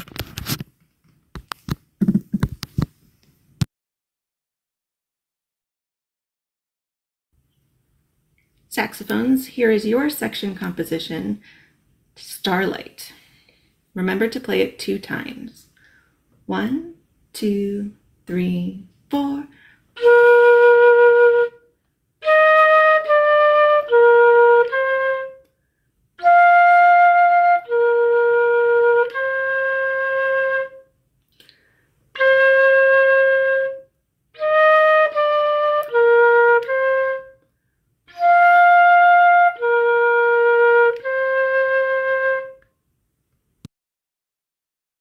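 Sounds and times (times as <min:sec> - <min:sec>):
solo flute melody: 0:20.0 - 0:25.5, 0:26.2 - 0:31.0, 0:32.1 - 0:37.4, 0:38.1 - 0:42.7.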